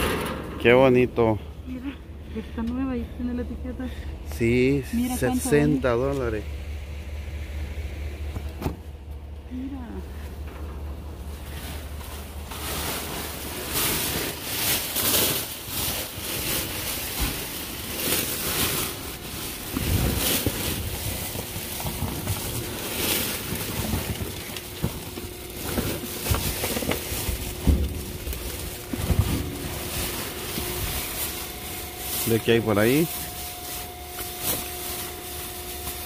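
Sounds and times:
bags rustling and knocking: 0:11.2 - 0:36.0.

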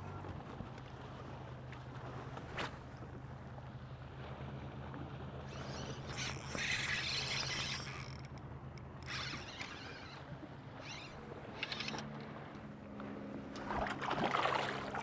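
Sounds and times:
fishing reel being cranked: 0:05.5 - 0:10.2.

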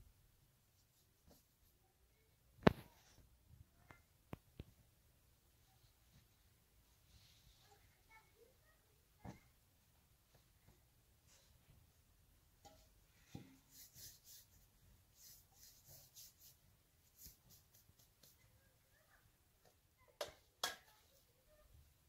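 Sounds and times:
scratchy rustles and scrapes: 0:13.2 - 0:18.5.

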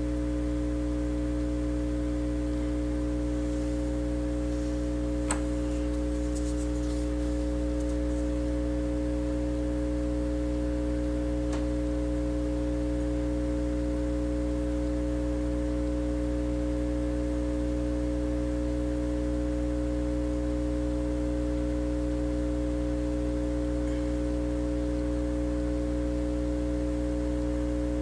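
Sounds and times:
hot air station humming: 0:02.0 - 0:11.7.

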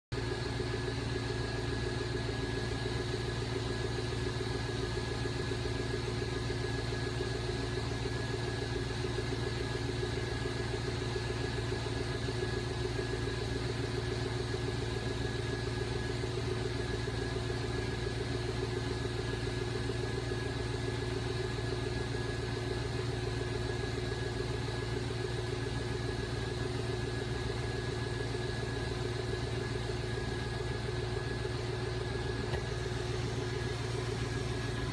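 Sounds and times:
rotator motor humming: 0:29.3 - 0:34.9.

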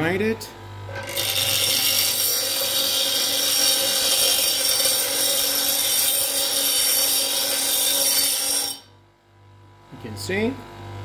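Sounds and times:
bench grinder grinding metal: 0:00.9 - 0:08.9.

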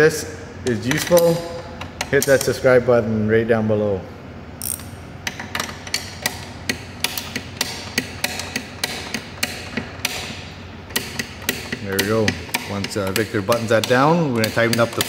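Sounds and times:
ratchet wrench clicking: 0:04.6 - 0:15.0.

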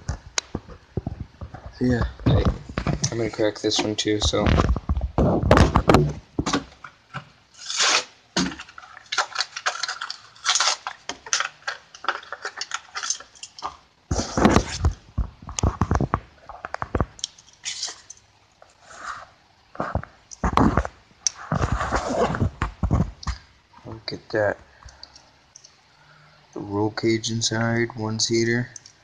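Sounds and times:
plastic packaging crackling: 0:00.0 - 0:18.2.

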